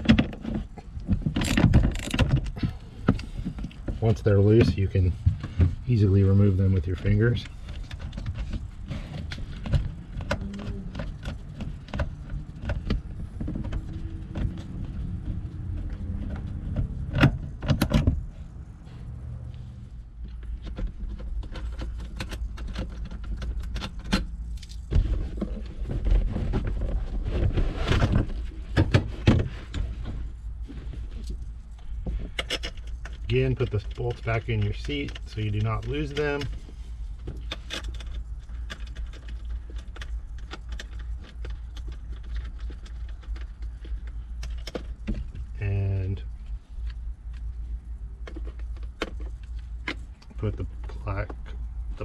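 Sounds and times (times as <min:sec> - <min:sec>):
clicks and rattles of bolts: 0:00.0 - 0:04.8, 0:20.2 - 0:25.6, 0:31.8 - 0:36.6, 0:37.2 - 0:45.5.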